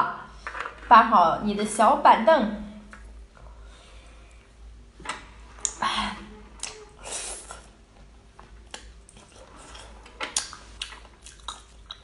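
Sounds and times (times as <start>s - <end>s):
wet chewing and biting: 8.6s - 12.0s.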